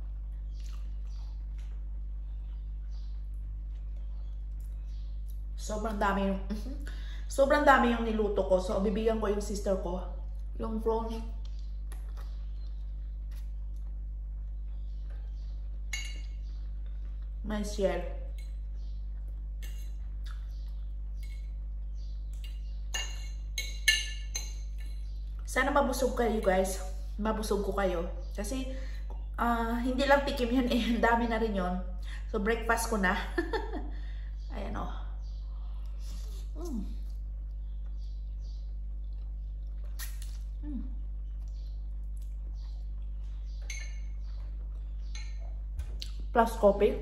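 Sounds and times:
low electrical hum: 0.0s - 47.0s
cutlery clinking against dish: 19.6s - 20.0s.

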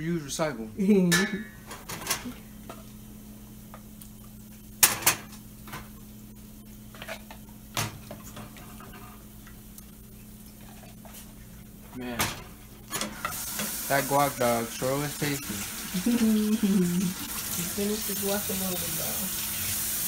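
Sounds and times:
steady low hum: 0.0s - 13.3s
dishes and utensils clinking: 1.0s - 2.9s.

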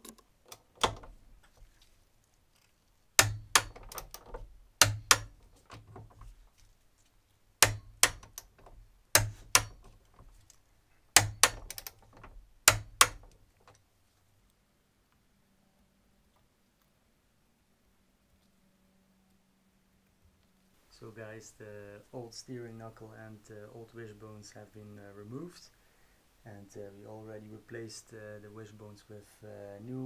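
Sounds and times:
socket ratchet clicking: 3.2s - 5.4s, 7.6s - 9.9s, 11.2s - 12.1s.

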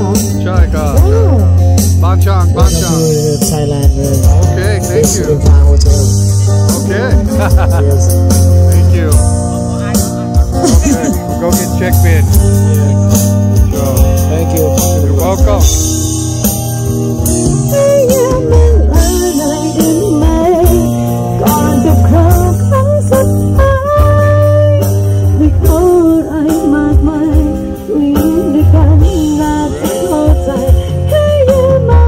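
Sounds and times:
guitar: 0.0s - 32.0s
steady bass: 0.0s - 32.0s
person singing: 17.0s - 32.0s.

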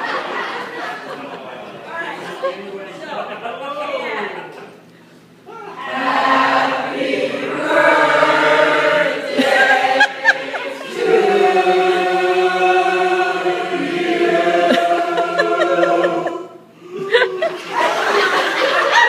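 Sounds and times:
mixed choir singing: 5.8s - 16.7s.

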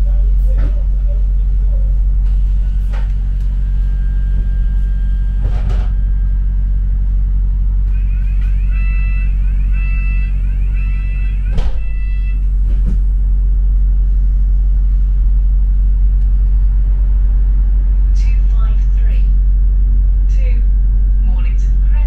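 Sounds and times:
bus engine humming: 0.0s - 22.0s
electronic warning beeps: 2.2s - 7.0s, 7.9s - 13.2s.

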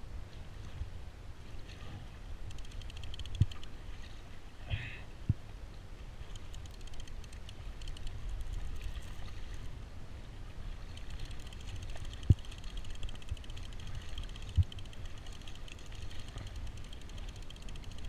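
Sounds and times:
light rapid ticking: 2.4s - 3.8s, 6.3s - 9.3s, 10.8s - 18.0s
water lapping against kayak hull: 5.4s - 18.0s.

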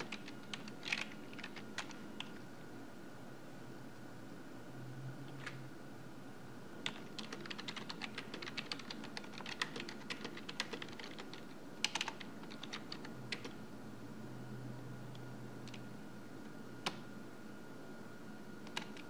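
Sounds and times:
typing on a computer keyboard: 0.0s - 2.4s, 6.8s - 13.6s, 18.6s - 19.0s
faint steady hum: 0.0s - 19.0s.

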